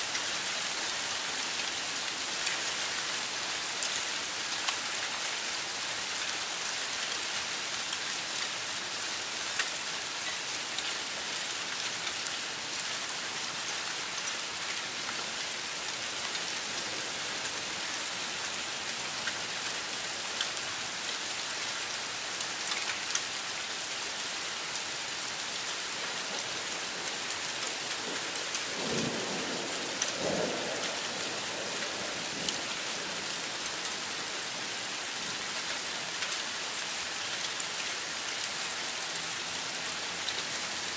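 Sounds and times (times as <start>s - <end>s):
heavy rain on roofs and pavement: 0.0s - 40.9s
low rumble of thunder: 28.1s - 32.7s.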